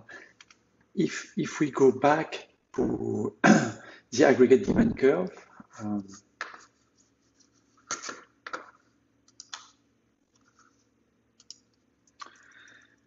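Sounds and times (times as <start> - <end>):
computer key clicks: 9.3 - 9.8, 11.4 - 12.4.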